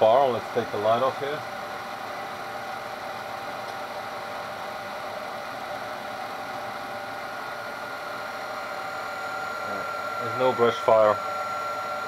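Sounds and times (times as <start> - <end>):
machine motor humming and whining: 0.0 - 12.0.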